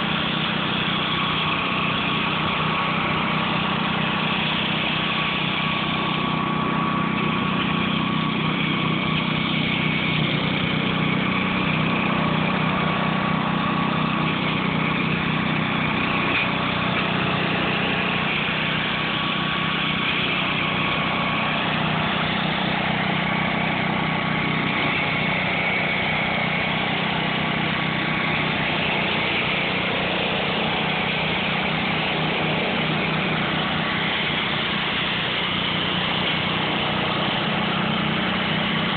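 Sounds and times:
mower deck cutting brush: 0.0 - 38.9
tractor engine running: 0.0 - 38.9.

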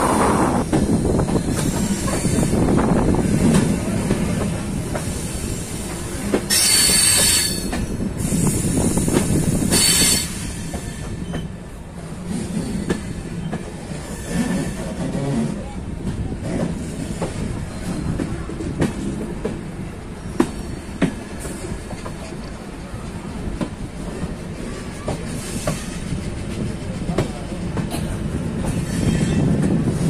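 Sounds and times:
train rumbling on rails: 0.0 - 30.0
high wheel squeal: 6.5 - 9.1, 9.7 - 11.5.

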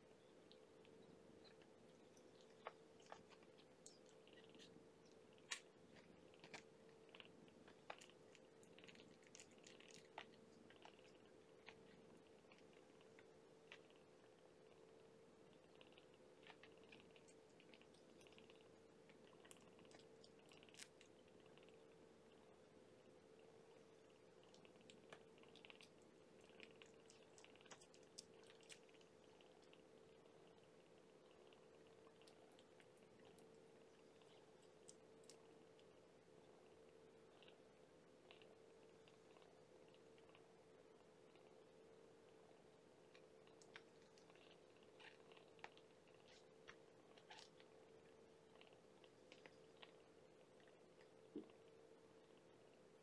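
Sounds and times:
faint steady hum: 0.0 - 53.0
kittens suckling wet smacking: 1.4 - 14.1, 23.4 - 36.0, 43.1 - 52.5.

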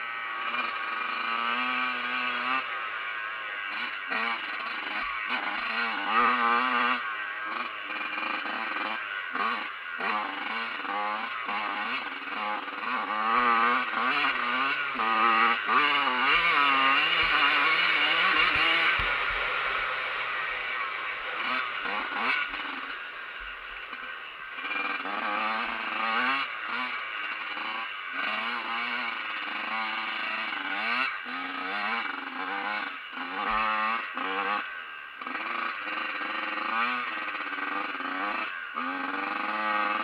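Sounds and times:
dirt bike engine revving: 0.0 - 40.0.

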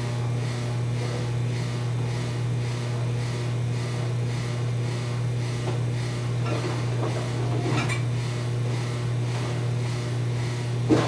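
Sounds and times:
kitchen machinery hum: 0.0 - 11.0
dishes and racks clattering: 6.4 - 8.1.

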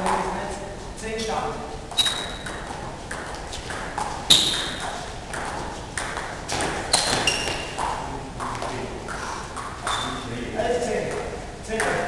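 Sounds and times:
table tennis ball clicking off bats: 2.1 - 8.7, 11.7 - 12.0.

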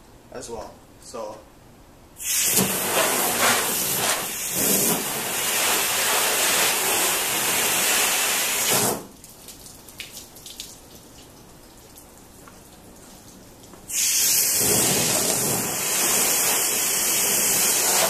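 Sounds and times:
garden hose spraying water: 2.2 - 9.3, 13.0 - 18.0
water dripping and trickling: 9.1 - 13.9.

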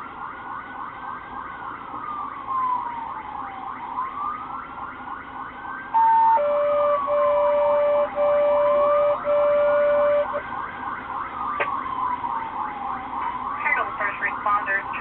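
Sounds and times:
police siren wailing: 0.0 - 15.0
loud electronic tone: 6.3 - 10.4.

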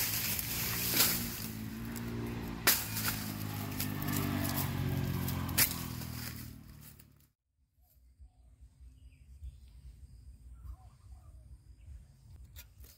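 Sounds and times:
machete chopping bamboo: 0.0 - 7.0
engine droning: 0.0 - 7.3.

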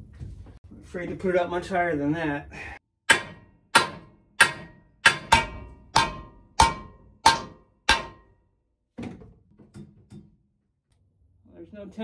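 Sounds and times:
hammer ringing on steel: 3.1 - 8.4.

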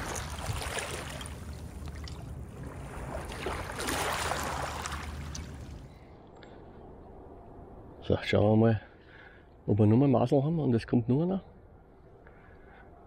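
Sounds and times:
river water rushing: 0.0 - 5.8
wind noise: 0.0 - 6.0.

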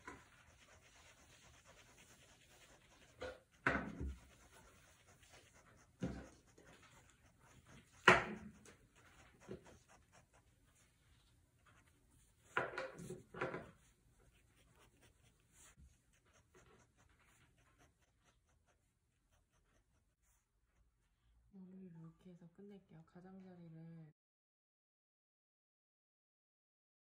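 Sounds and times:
knocks and rubs on desk: 0.0 - 10.0, 11.8 - 17.4
pen strokes on paper: 0.0 - 21.2.

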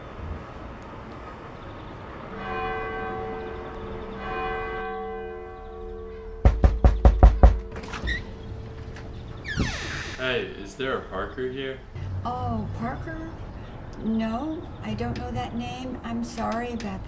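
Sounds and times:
church bell ringing: 2.2 - 6.8, 7.4 - 9.4
knocking on a door: 6.4 - 7.7.

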